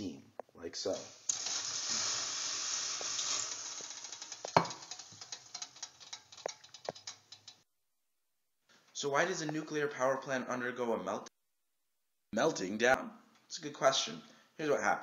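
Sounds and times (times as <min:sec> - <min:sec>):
crackles and pops: 0:00.3 - 0:07.6
water sizzling on hot stove coil: 0:00.9 - 0:07.6.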